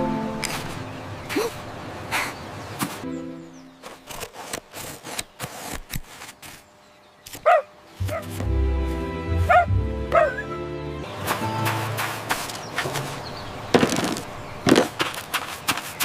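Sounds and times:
scissors cutting cardboard: 3.8 - 6.6
cartoon puppy barking: 7.4 - 8.4, 9.4 - 10.6
background music with bass: 8.0 - 12.1.

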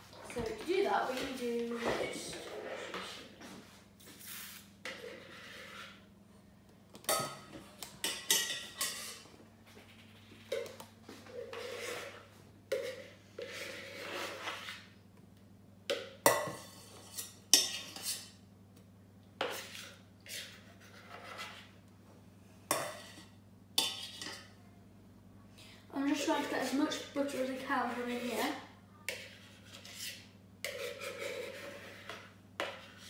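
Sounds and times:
metal utensil scraping bowl: 4.8 - 6.0, 11.3 - 14.9, 16.4 - 18.4, 26.4 - 33.0.

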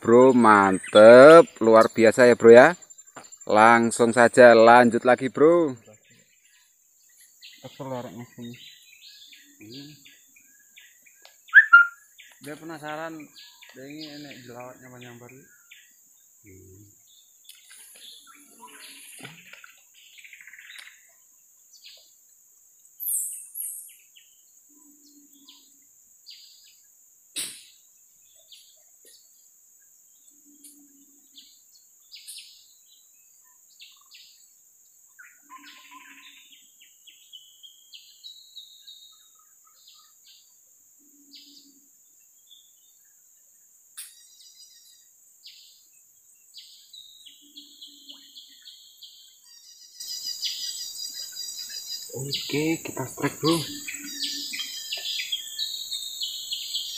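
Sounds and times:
birds chirping: 0.0 - 56.9
high insect drone: 0.0 - 56.9
low short bird call: 11.5 - 12.0
loud high bird call: 11.5 - 12.1, 50.0 - 56.9.

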